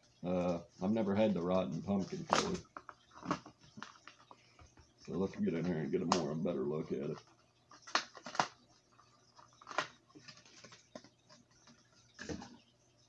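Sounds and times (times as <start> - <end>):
plastic package crinkling: 7.8 - 11.1.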